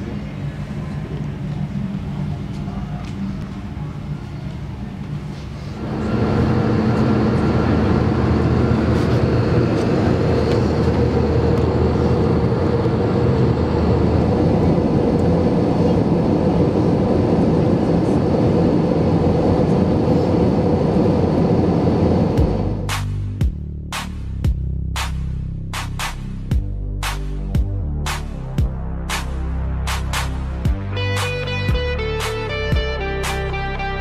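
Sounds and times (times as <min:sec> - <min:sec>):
jet engines rumbling: 0:00.0 - 0:23.4
rushing air: 0:05.2 - 0:23.4.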